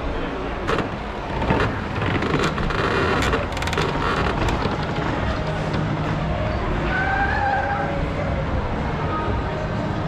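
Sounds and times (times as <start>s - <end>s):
knocks and clatter: 0.6s - 6.1s.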